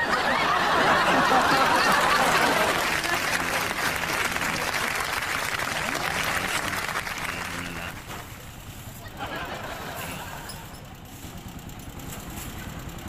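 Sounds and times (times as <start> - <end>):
crowd applause: 0.0 - 8.4, 9.0 - 10.6.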